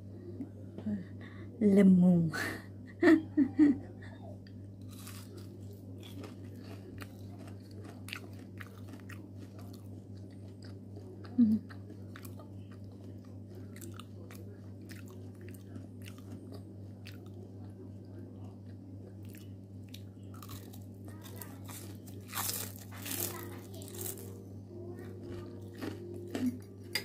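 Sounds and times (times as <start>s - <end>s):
steady low hum: 0.0s - 27.0s
crunchy chewing: 4.8s - 27.0s.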